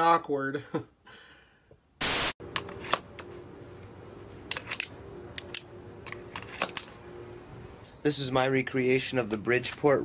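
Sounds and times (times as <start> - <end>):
static hiss burst: 2.0 - 2.4
steady low hum: 2.4 - 8.1.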